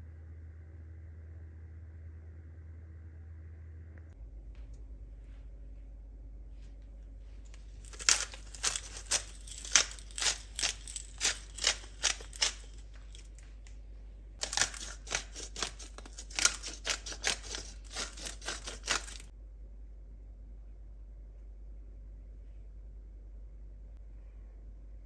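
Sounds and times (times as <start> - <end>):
plastic crinkling: 7.5 - 13.6, 14.4 - 19.3.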